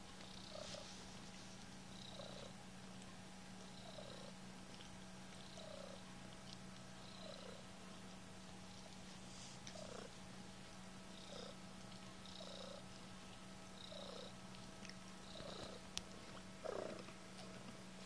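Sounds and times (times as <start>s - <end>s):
cat purring: 0.2s - 2.6s, 3.6s - 7.7s, 9.2s - 10.3s, 11.0s - 11.6s, 12.2s - 13.0s, 13.7s - 14.5s, 15.1s - 17.9s.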